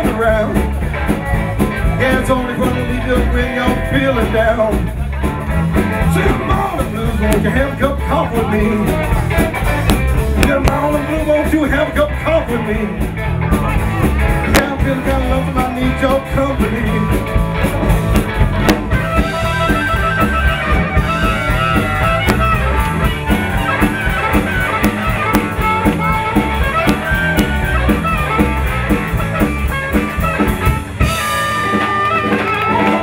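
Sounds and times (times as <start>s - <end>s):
bass: 0.0s - 33.0s
drum kit: 0.0s - 33.0s
electric guitars: 0.0s - 33.0s
amplified blues harmonica: 14.5s - 33.0s.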